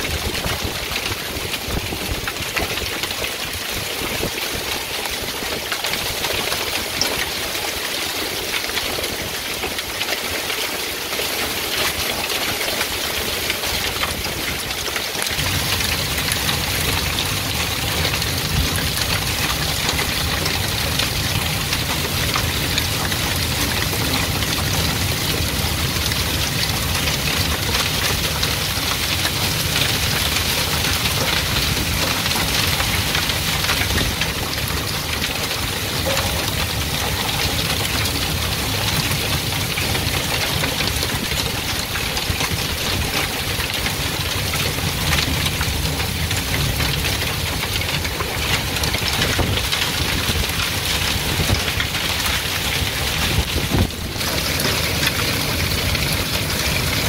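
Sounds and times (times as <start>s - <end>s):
hail and heavy rain pelting: 0.0s - 57.0s.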